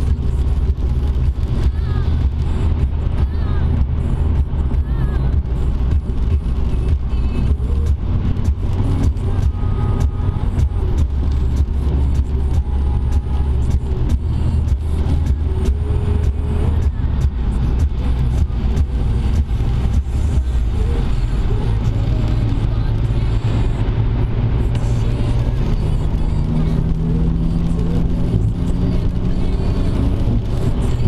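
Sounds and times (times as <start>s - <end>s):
road and engine rumble: 0.0s - 31.0s.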